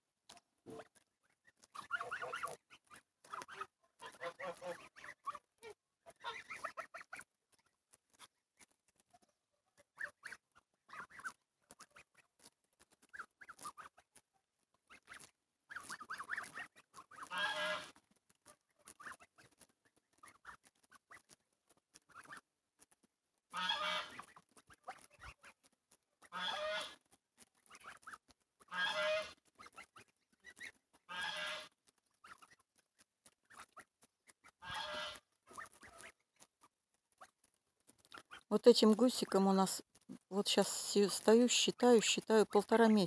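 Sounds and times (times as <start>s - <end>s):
geese honking: 1.7s - 7.2s, 15.0s - 18.0s, 23.5s - 25.5s, 26.2s - 27.0s, 27.7s - 32.5s, 34.5s - 36.2s
soft short goose calls: 1.7s - 7.3s, 9.2s - 12.3s, 14.9s - 19.5s, 23.5s - 25.6s, 26.2s - 27.0s, 27.7s - 32.6s, 33.4s - 36.2s.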